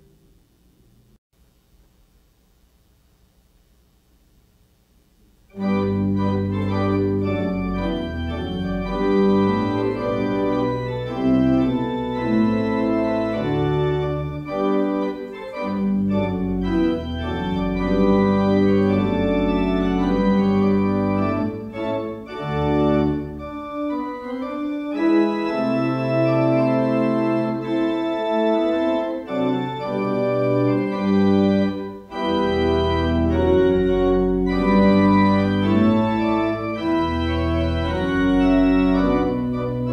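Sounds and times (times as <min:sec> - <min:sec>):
organ chords: 0:05.0 - 0:39.9.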